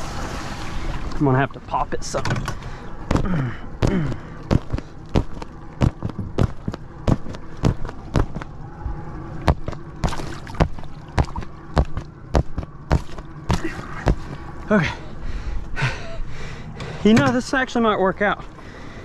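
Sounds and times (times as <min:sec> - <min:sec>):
rush of noise: 0:00.0 - 0:16.8
knocks and crackles of pool float: 0:02.0 - 0:08.6, 0:09.4 - 0:14.4.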